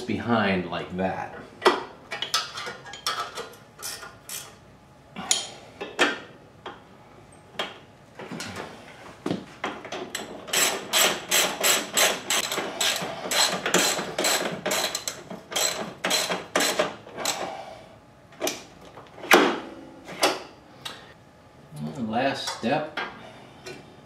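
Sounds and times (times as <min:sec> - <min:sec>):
ratchet wrench ratcheting: 0:10.5 - 0:17.4.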